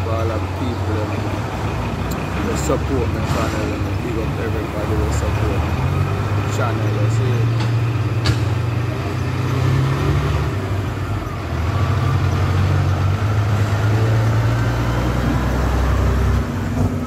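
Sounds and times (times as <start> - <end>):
diesel truck engine droning: 0.0 - 17.0.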